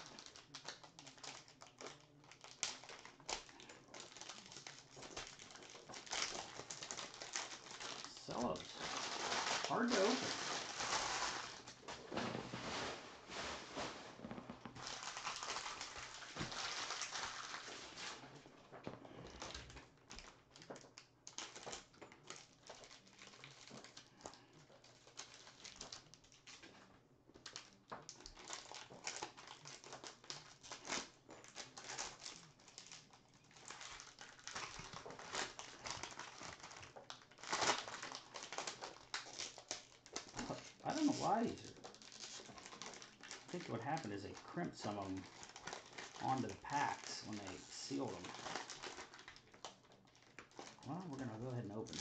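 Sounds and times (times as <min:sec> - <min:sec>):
plastic wrappers crinkling: 0:00.0 - 0:52.0.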